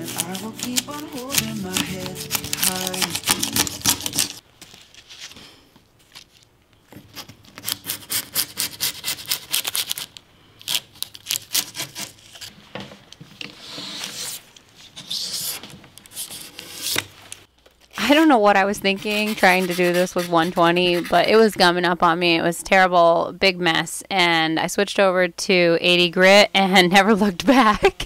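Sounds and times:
hand scraping wooden surface: 0:00.0 - 0:04.4.

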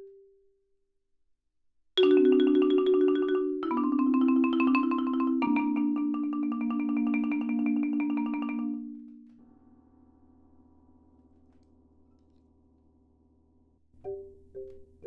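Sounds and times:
marimba tremolo chord: 0:02.0 - 0:08.9.

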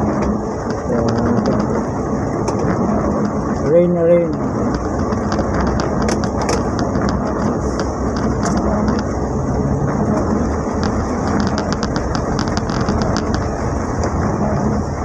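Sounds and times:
engine and road noise: 0:00.0 - 0:15.0
heavy rain on vehicle roof: 0:00.0 - 0:15.0.

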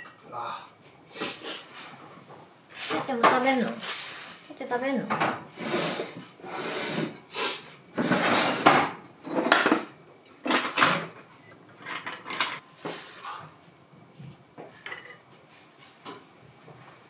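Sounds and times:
dishes and cutlery clattering: 0:11.8 - 0:12.6, 0:14.8 - 0:15.2.

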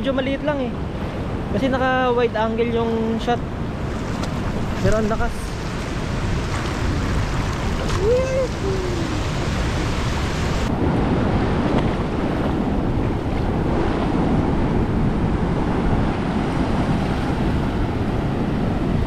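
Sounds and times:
wind buffeting microphone: 0:00.0 - 0:19.0
waves breaking on rocks: 0:03.6 - 0:10.7.

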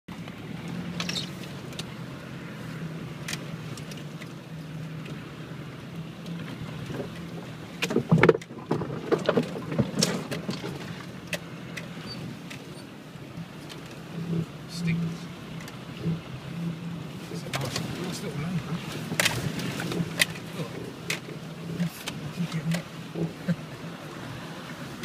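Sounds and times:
engine running at low speed: 0:00.1 - 0:25.0
vehicle knocks and clunks: 0:06.0 - 0:12.9, 0:17.3 - 0:24.0.

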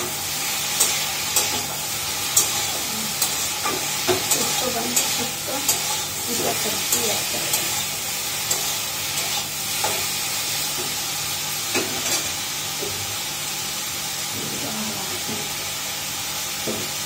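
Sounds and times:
vegetables sizzling in a pan: 0:00.0 - 0:17.0
steel spoon scraping a pan: 0:00.5 - 0:11.1, 0:11.7 - 0:12.4.

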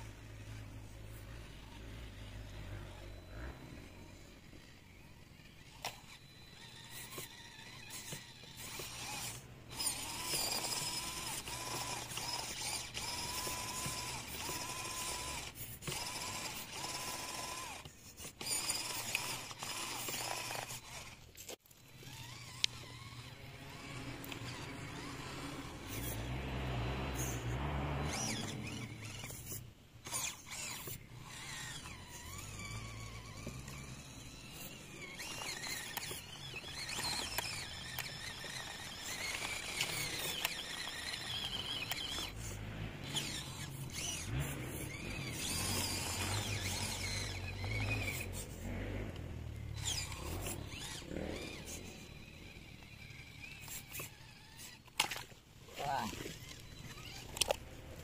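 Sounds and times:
small electric motor whining: 0:00.0 - 0:58.0
clicks and creaks: 0:28.3 - 0:58.0.

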